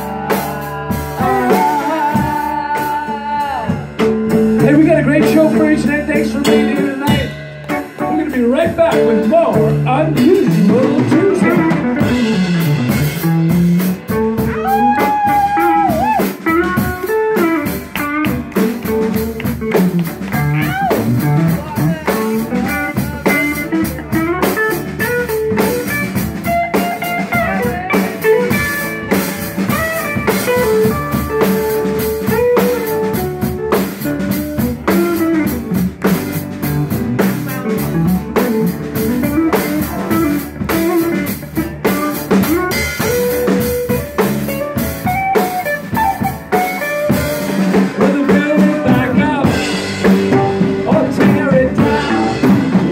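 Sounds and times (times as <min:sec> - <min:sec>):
drum kit beat: 0:00.0 - 0:52.9
electric bass: 0:00.0 - 0:52.9.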